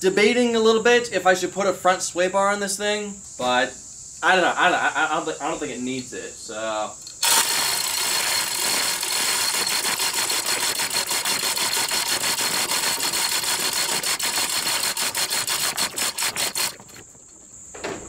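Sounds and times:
chain hoist clicking: 0:07.2 - 0:17.5.

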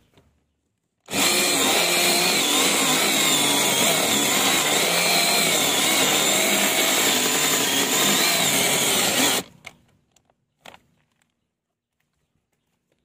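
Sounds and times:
electric chainsaw cutting wood: 0:01.1 - 0:09.5.

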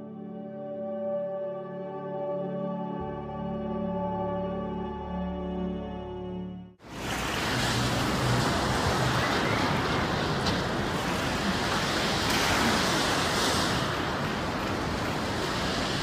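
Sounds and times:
sea breaking at the shoreline: 0:06.8 - 0:16.0.

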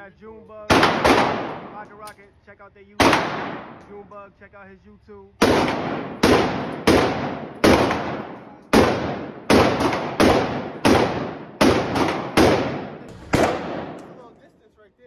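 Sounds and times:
gunshots echoing indoors: 0:00.7 - 0:02.2, 0:03.0 - 0:04.0, 0:05.4 - 0:14.5.

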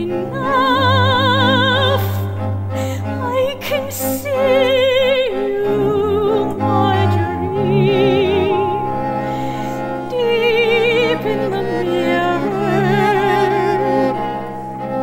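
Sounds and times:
soprano singing operatic notes: 0:00.0 - 0:15.0
low sustained ensemble tones: 0:00.4 - 0:15.0.

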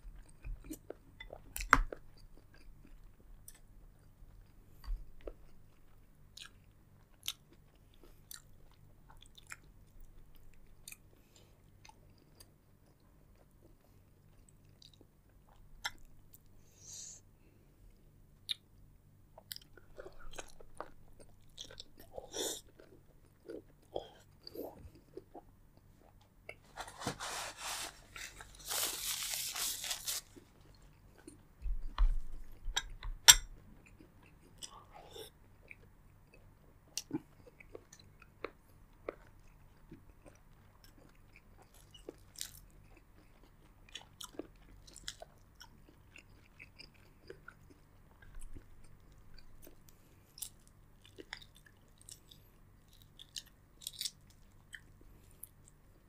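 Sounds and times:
dense crunching of food: 0:26.5 - 0:32.0, 0:40.2 - 0:55.6
chewing clicks and smacks: 0:35.6 - 0:55.8.

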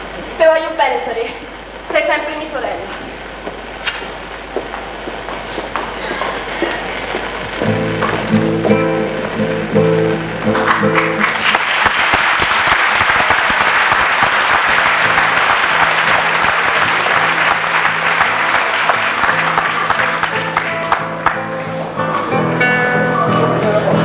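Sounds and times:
music: 0:07.3 - 0:11.4, 0:14.7 - 0:24.0
audience applauding: 0:10.5 - 0:22.0.

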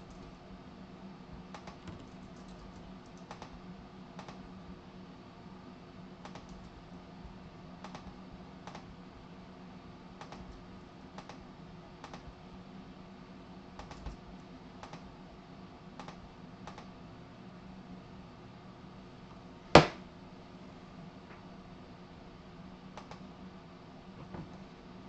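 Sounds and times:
steady low hum: 0:00.0 - 0:25.0
computer keyboard keypresses: 0:01.5 - 0:03.6, 0:04.2 - 0:04.4, 0:06.2 - 0:06.7, 0:07.8 - 0:08.9, 0:10.2 - 0:10.6, 0:11.2 - 0:11.4, 0:12.0 - 0:12.2, 0:13.8 - 0:14.2, 0:14.8 - 0:15.0, 0:16.0 - 0:16.9, 0:23.0 - 0:23.2.

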